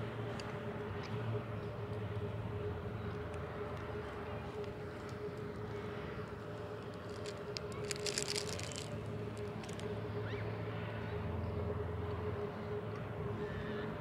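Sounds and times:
outdoor background hum: 0.0s - 14.0s
crackling: 3.2s - 10.0s.

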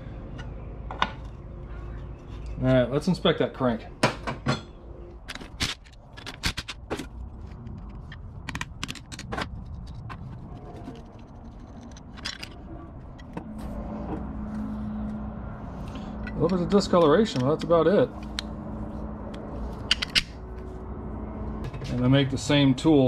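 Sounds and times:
steady low hum: 0.0s - 23.0s
connecting rods clanking: 10.9s - 14.2s, 16.2s - 18.4s, 19.8s - 20.4s.

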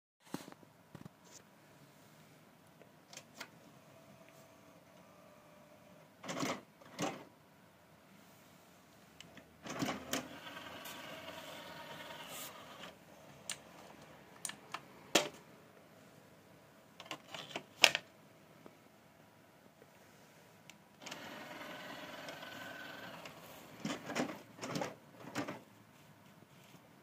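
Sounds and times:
disc tray motor whir: 9.8s - 13.0s, 21.0s - 24.0s.

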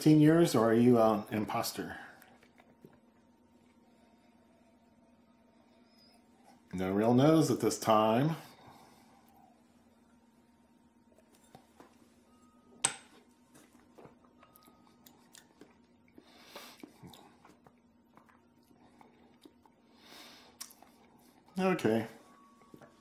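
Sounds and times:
low steady hum: 0.0s - 23.0s
mouth and lip clicks: 20.6s - 20.9s.

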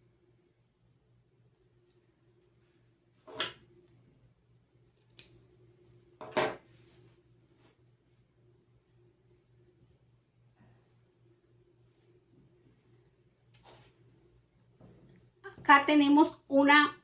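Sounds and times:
scissors snipping thread: 5.0s - 5.4s.

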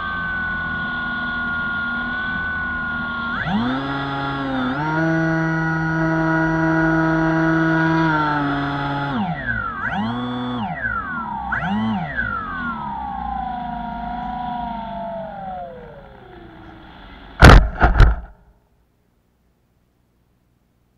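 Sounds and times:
electric propeller motor whine: 0.0s - 17.5s
plane thumping on grass: 17.4s - 18.4s.

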